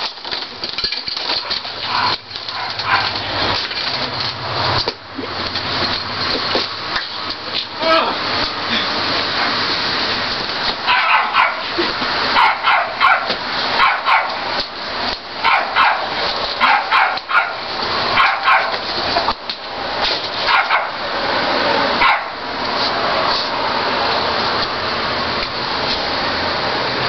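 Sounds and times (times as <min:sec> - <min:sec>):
dog barking: 0:01.9 - 0:03.2, 0:10.9 - 0:11.6, 0:12.4 - 0:14.4, 0:15.4 - 0:17.6, 0:18.2 - 0:18.8, 0:20.5 - 0:21.0, 0:22.0 - 0:22.4.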